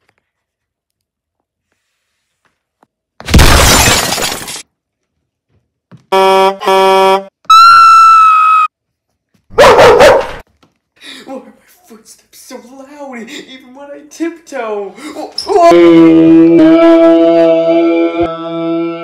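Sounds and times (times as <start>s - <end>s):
horn honks: 6.1s - 7.8s.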